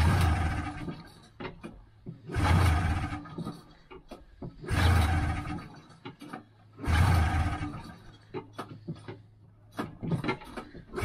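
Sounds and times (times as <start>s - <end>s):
recoil starter rope pulls: 0.0s - 11.0s
small clicks and knocks: 0.8s - 2.3s, 3.3s - 4.7s, 5.8s - 6.7s, 8.0s - 11.0s.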